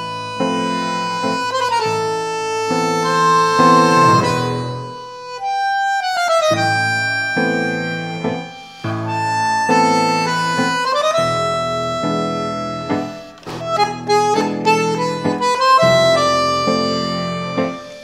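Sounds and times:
tango music led by bandoneon: 0.0s - 18.0s.

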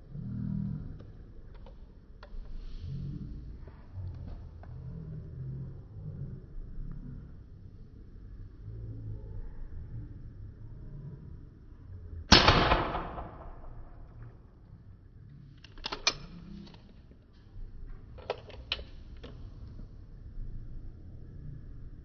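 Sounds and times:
handgun shot: 12.3s - 13.7s.

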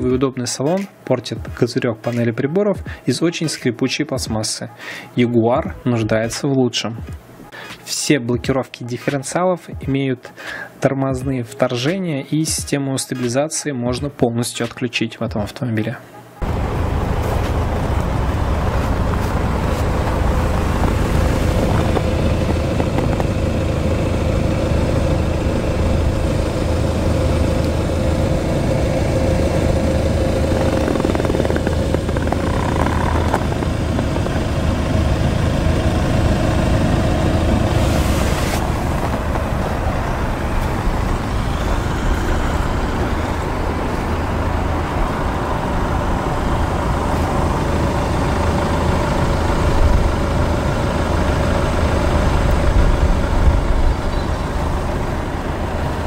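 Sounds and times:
diesel engine running steadily: 16.4s - 56.0s.

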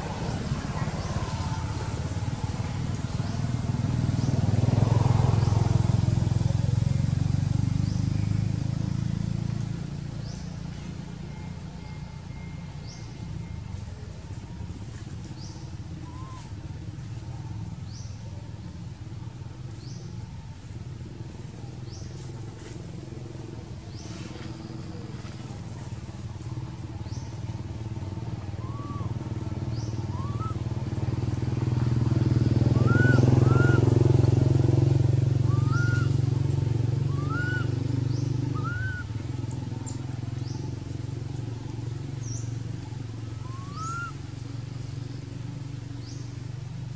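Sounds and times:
passing vehicle engine hum: 0.0s - 46.9s.

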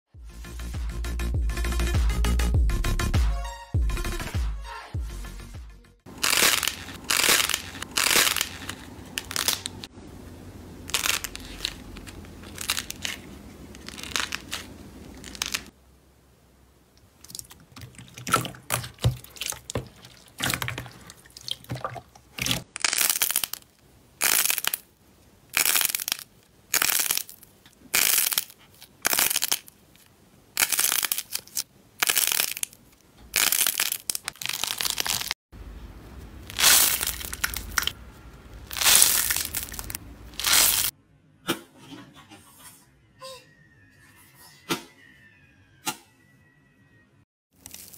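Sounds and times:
hands squelching slime: 17.2s - 23.6s, 36.4s - 38.0s, 38.6s - 40.9s.

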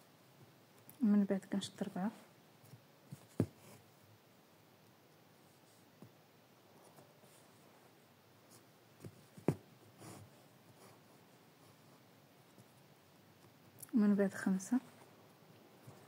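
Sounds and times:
fabric rustle: 5.4s - 16.0s.

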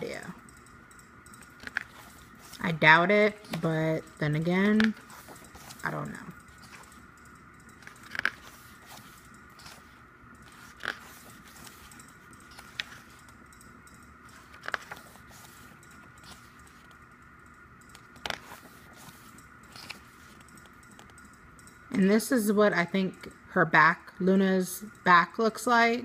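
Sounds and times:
faint high hum: 0.0s - 26.0s
photobook pages turning: 1.6s - 2.6s, 7.8s - 13.3s, 14.3s - 16.9s, 18.2s - 20.4s.

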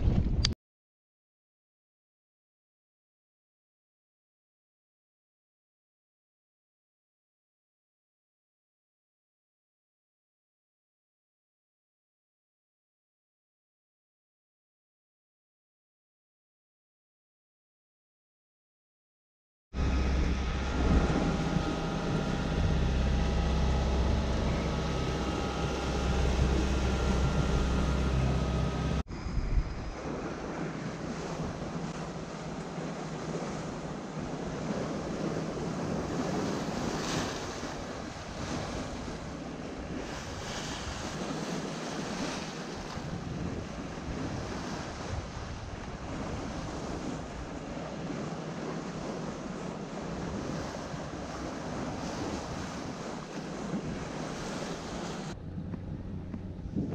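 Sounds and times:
wind buffeting microphone: 0.0s - 0.6s, 19.8s - 56.9s
water splashing along boat hull: 19.8s - 29.0s, 29.8s - 56.9s
low rumble with steady hum: 19.8s - 36.8s, 49.4s - 56.9s.

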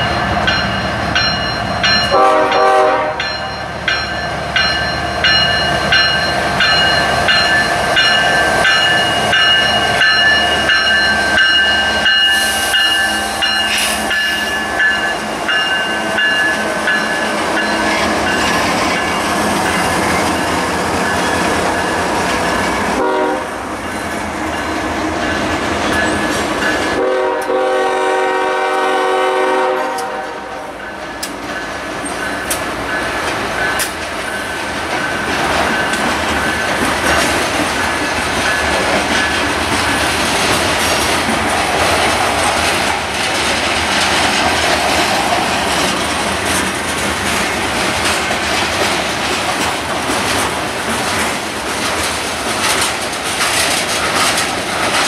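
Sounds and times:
bell dinging: 0.0s - 2.2s, 3.2s - 19.2s
diesel locomotives rumbling: 0.0s - 55.0s
train wheels clacking: 0.0s - 55.0s
train horn: 2.1s - 3.5s, 22.9s - 23.6s, 26.9s - 30.8s.

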